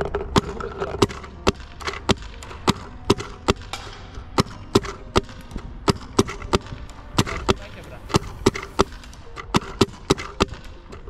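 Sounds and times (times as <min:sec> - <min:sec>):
paintball gun pops: 0:00.0 - 0:07.4.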